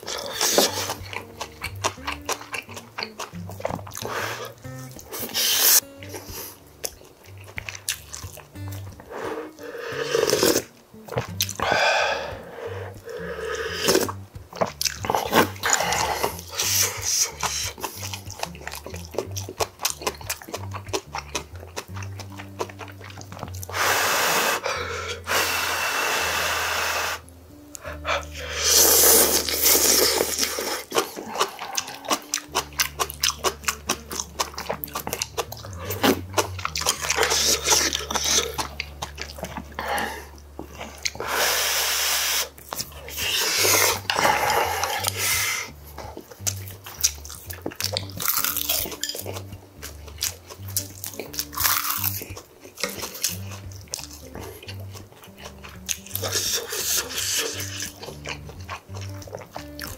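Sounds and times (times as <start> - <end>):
wet chewing and lip smacks: 0.0 - 23.9, 27.2 - 59.9
noisy slurps of noodles: 9.1 - 10.7, 23.7 - 27.2, 28.4 - 31.8, 41.2 - 45.7, 56.2 - 57.7.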